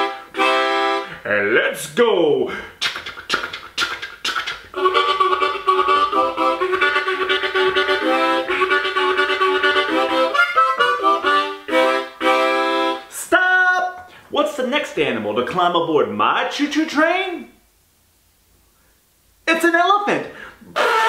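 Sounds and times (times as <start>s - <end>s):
harmonica train imitation: 0.0s - 1.2s, 2.8s - 13.2s, 20.8s - 21.0s.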